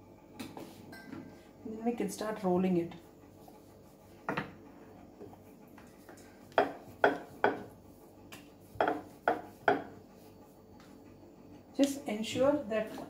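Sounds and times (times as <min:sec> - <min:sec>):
rolling pin knocking on board: 0:06.5 - 0:07.7, 0:08.8 - 0:09.9.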